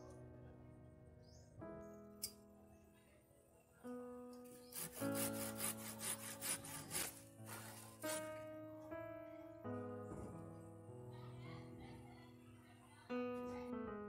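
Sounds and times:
background music: 0:00.0 - 0:14.0
handsaw cutting wood: 0:04.5 - 0:08.3.

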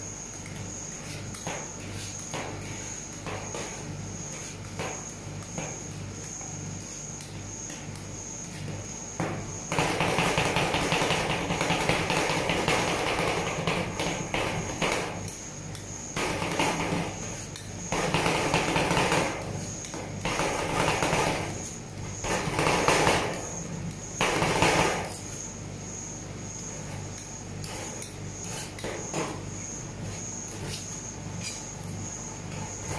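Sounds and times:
metal spatulas chopping and scraping: 0:27.0 - 0:31.9.

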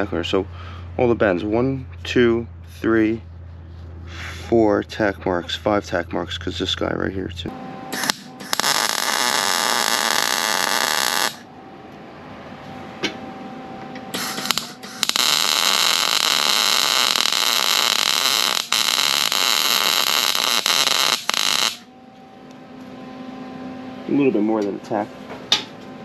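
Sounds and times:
welding arc buzzing: 0:07.8 - 0:11.5, 0:14.0 - 0:21.9.

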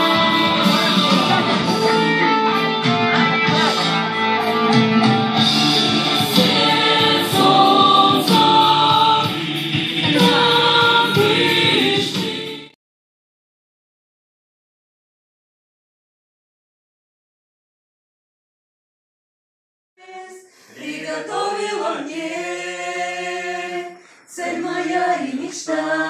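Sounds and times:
group of voices singing: 0:00.0 - 0:04.0, 0:05.3 - 0:12.8, 0:20.0 - 0:26.0
instrumental accompaniment: 0:00.0 - 0:12.8.

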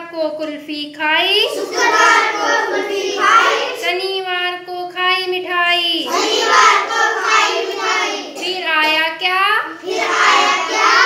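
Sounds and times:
children singing in unison: 0:01.5 - 0:03.8, 0:06.1 - 0:08.4, 0:09.8 - 0:11.0.

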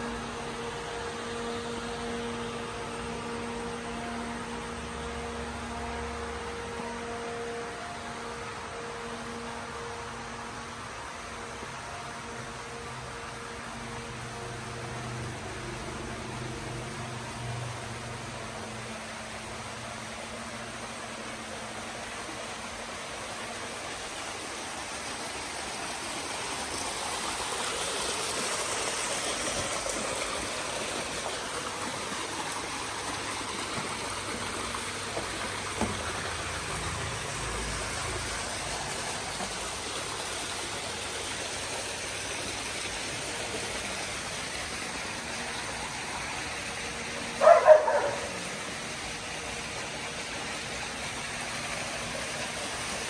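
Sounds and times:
running water: 0:00.0 - 0:53.0
dog barking: 0:47.4 - 0:48.4.

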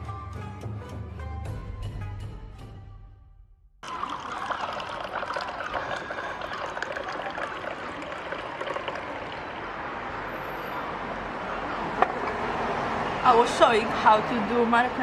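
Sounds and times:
tea trickling into glass: 0:03.8 - 0:09.6.

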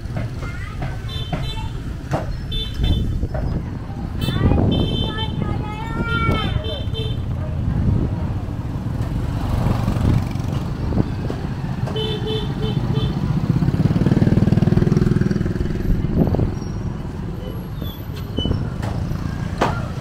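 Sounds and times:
motorbike engine running: 0:11.6 - 0:16.2.

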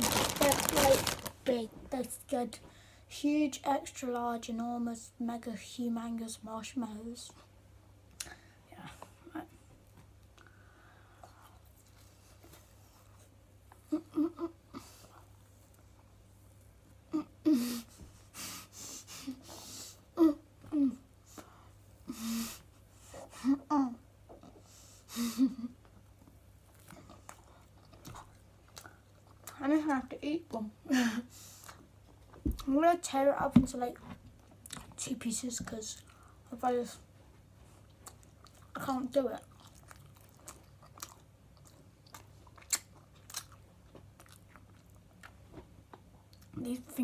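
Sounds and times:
boy chewing marshmallow: 0:24.3 - 0:30.0, 0:31.3 - 0:32.8, 0:34.0 - 0:35.0, 0:35.8 - 0:46.6
wet mouth clicks and smacks: 0:42.1 - 0:43.6.

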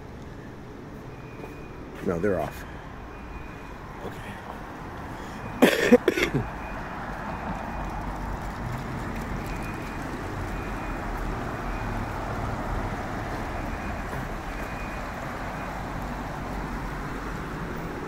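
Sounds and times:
cars passing: 0:00.0 - 0:18.0.

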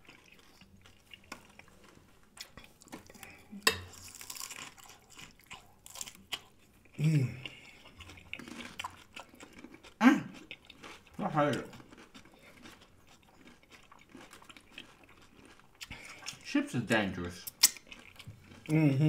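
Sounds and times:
biting and chewing food: 0:00.0 - 0:19.0
person humming: 0:07.0 - 0:07.4, 0:18.7 - 0:19.0.

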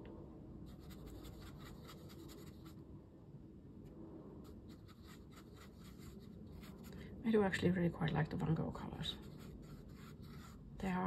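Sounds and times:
brush strokes on paper: 0:00.6 - 0:02.8, 0:04.4 - 0:07.0, 0:08.9 - 0:10.8.

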